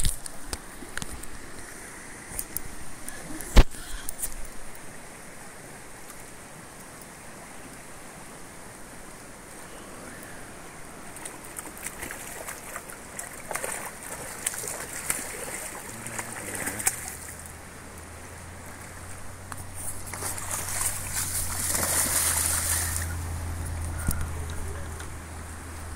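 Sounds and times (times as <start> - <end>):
river current rushing: 0.0 - 25.9
fish splashing and thrashing: 11.1 - 17.6, 18.7 - 24.7.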